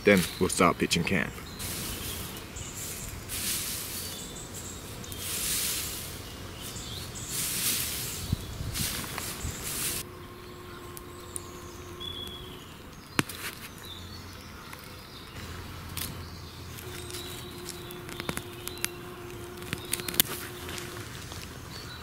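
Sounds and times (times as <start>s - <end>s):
bird chirps: 0.0s - 22.0s
blade digging into soil: 1.5s - 10.1s, 10.8s - 13.8s, 15.4s - 21.6s
sharp clicks: 14.7s - 21.5s.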